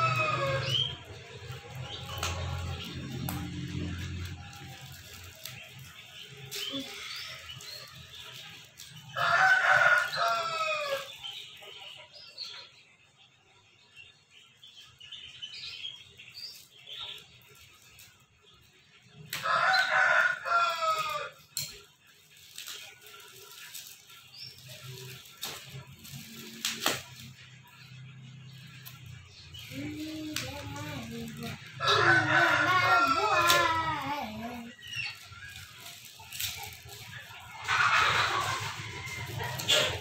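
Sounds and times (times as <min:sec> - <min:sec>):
rooster crowing: 0:00.0 - 0:01.0, 0:09.2 - 0:11.1, 0:19.4 - 0:21.4, 0:31.8 - 0:34.6, 0:37.6 - 0:40.0.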